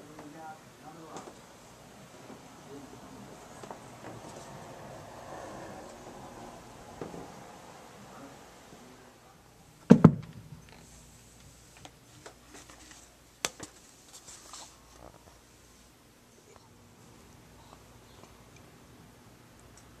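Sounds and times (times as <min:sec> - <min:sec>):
dull thumps: 0:09.9 - 0:10.6.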